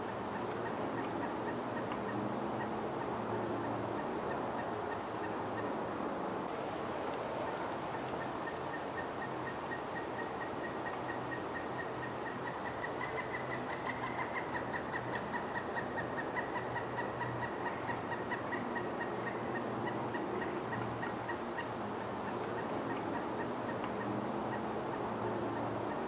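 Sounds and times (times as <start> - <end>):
woodpecker calling: 7.9 - 26.0.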